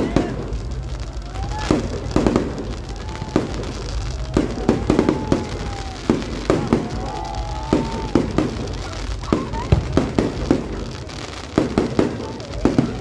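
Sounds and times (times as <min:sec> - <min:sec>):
firework whistles: 0:00.0 - 0:13.0
fireworks bangs and crackling: 0:00.0 - 0:13.0.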